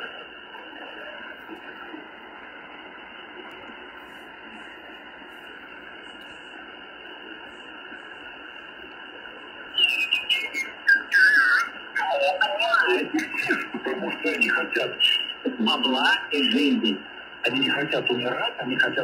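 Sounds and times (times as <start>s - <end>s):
crackly radio signal: 0.0s - 19.0s
muffled radio hiss: 0.0s - 19.0s.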